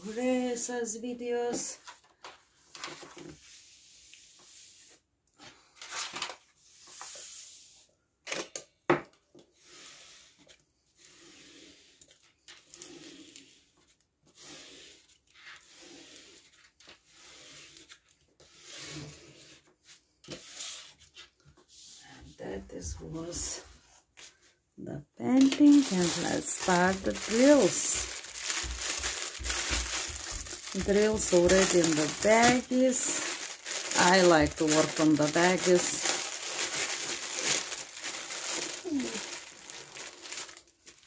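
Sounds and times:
paper rustling and crinkling: 5.5 - 6.5, 25.4 - 41.0.

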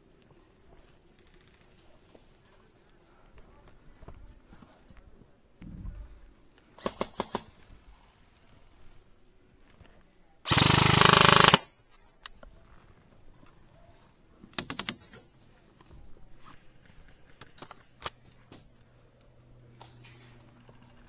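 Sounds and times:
airsoft rifle shots: 6.8 - 7.5, 10.5 - 11.7.

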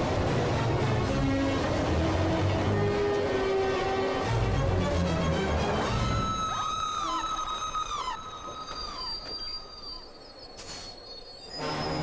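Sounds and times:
train brakes screeching on rails: 7.0 - 12.0.

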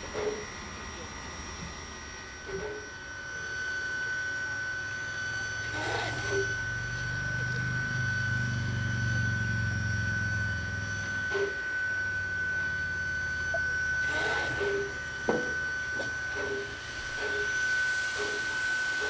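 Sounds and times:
steady high whine: 0.0 - 19.0
steam hiss: 14.0 - 19.0.

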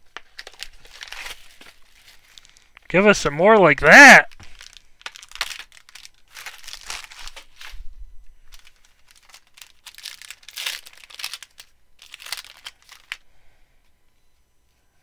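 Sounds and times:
foil wrapper crinkling: 0.0 - 2.9, 4.3 - 13.2
foil wrapper tearing: 0.1 - 2.8, 4.3 - 7.8, 8.5 - 13.2.

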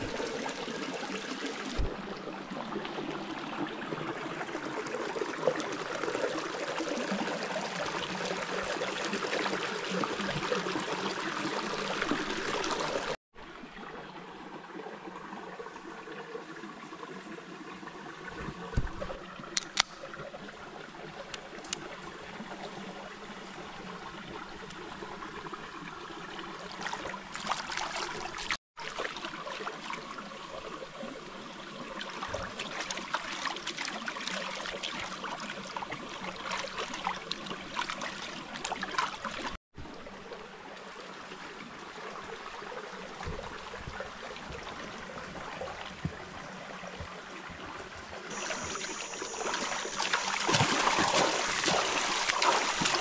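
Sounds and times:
river water trickling and lapping: 0.0 - 53.0
feet splashing water: 26.7 - 30.0, 43.2 - 53.0.

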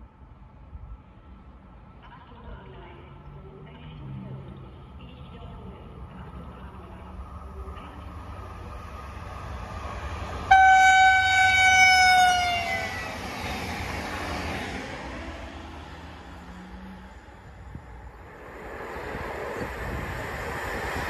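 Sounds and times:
train cars rushing past: 4.0 - 21.0
train horn blast: 10.5 - 13.1.

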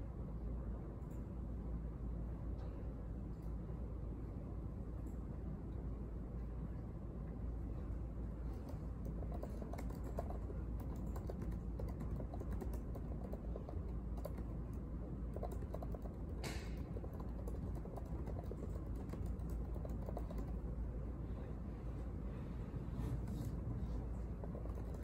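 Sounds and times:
low room hum: 0.0 - 25.0
laptop keyboard typing: 8.5 - 20.8, 24.2 - 25.0.

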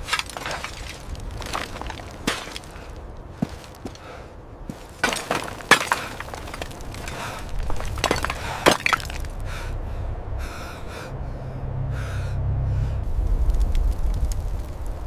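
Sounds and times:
concrete cracking and breaking: 0.0 - 4.1, 4.7 - 9.4
low rumble: 6.2 - 15.0.

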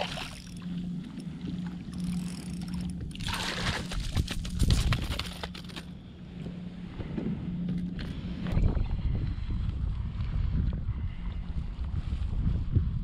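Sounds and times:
water splashing and sloshing: 0.0 - 5.9.

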